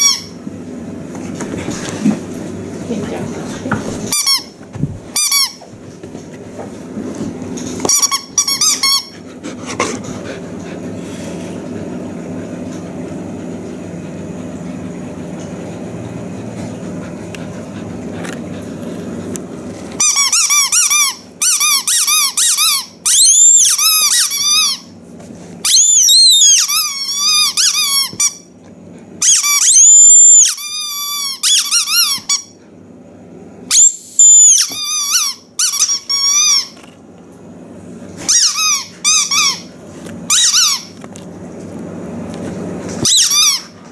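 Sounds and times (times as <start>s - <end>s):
squeaky toy squeaking: 5.2s - 5.6s, 20.0s - 24.8s, 33.7s - 36.8s, 38.3s - 39.7s, 40.3s - 40.9s, 43.0s - 43.7s.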